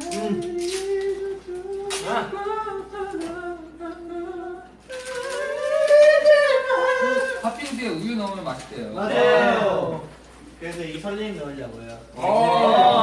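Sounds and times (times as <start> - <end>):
young man humming: 0.0 - 7.5.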